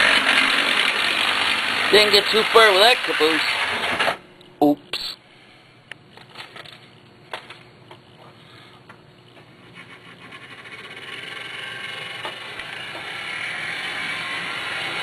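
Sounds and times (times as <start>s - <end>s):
model train whirring on track: 0.0s - 4.2s, 9.7s - 15.0s.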